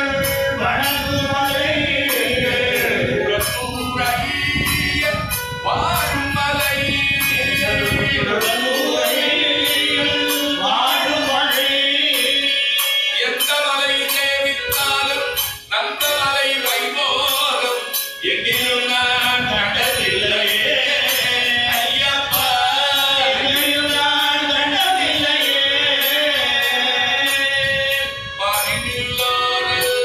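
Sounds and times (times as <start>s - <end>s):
group of voices singing: 0.0s - 13.5s, 18.2s - 30.0s
harmonium chords: 0.0s - 30.0s
steady percussive beat: 0.0s - 30.0s.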